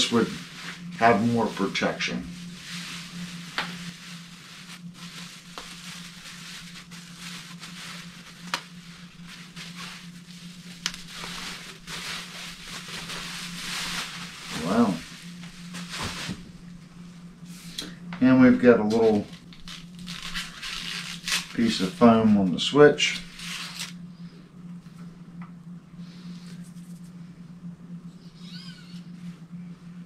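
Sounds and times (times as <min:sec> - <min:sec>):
bubble wrap rustling and crackling: 0:00.0 - 0:16.6, 0:19.1 - 0:22.3, 0:23.1 - 0:24.0
steady low hum: 0:00.0 - 0:30.0.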